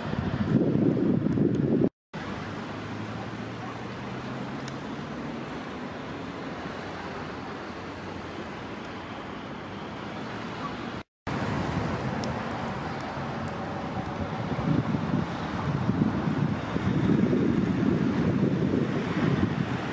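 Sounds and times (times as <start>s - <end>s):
wind buffeting microphone: 0.0s - 1.9s, 10.9s - 19.9s
road traffic hiss: 0.0s - 19.9s.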